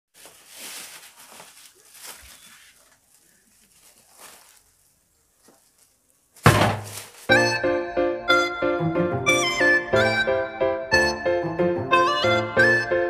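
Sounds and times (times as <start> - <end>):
plastic wrapping crinkling: 0.1 - 7.4.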